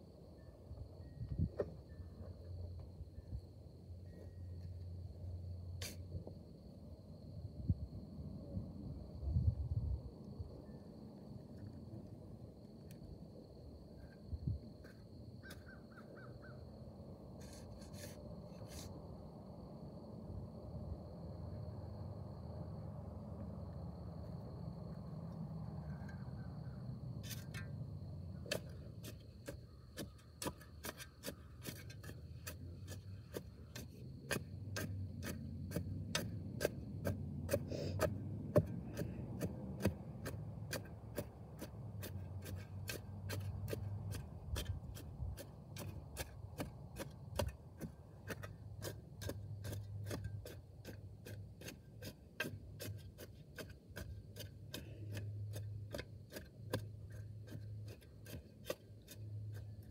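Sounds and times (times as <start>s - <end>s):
shovel digging hard soil: 5.8s - 6.1s, 17.4s - 18.9s, 27.2s - 27.7s, 28.4s - 59.9s.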